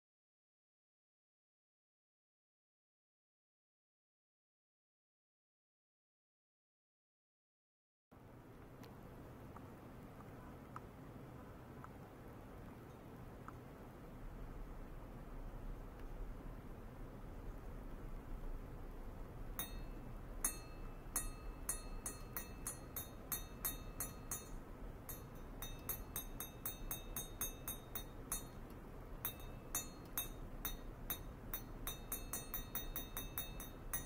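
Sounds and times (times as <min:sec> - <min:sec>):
metal rod clinking on plate: 0:19.6 - 0:34.0.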